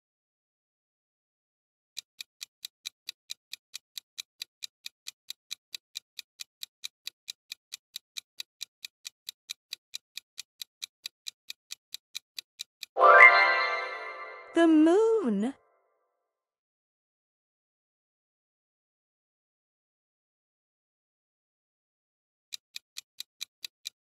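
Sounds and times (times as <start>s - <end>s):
clock ticking: 2.0s - 13.9s, 22.5s - 24.0s.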